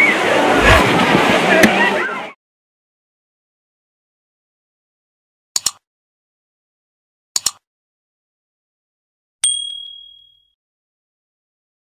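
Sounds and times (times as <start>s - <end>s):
double mouse clicks: 5.6s - 5.8s, 7.4s - 7.6s
notification bell ding: 9.4s - 10.6s.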